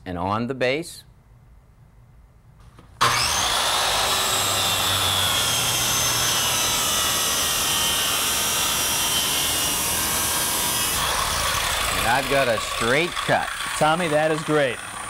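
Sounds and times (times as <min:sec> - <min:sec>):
circular saw cutting wood: 0:03.0 - 0:15.0.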